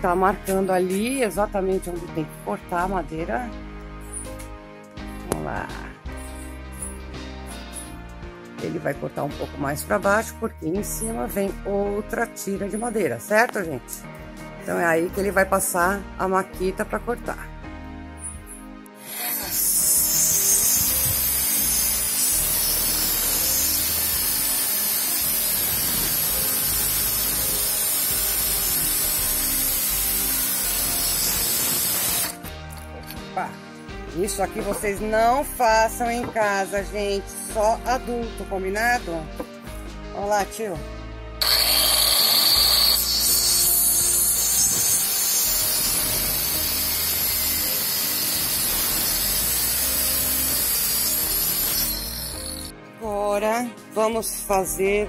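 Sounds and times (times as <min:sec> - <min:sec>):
circular saw cutting wood: 0:19.0 - 0:32.4, 0:41.4 - 0:52.7.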